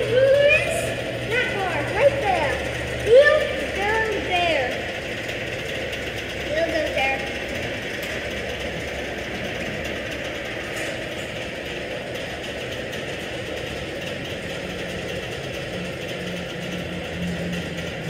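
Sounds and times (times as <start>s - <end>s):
electric door drive running: 0.0s - 18.0s
low hum: 0.0s - 18.0s.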